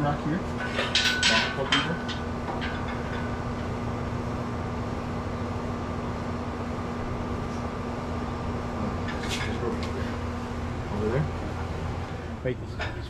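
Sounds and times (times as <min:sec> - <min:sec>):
mechanical hum with hiss: 0:00.0 - 0:13.0.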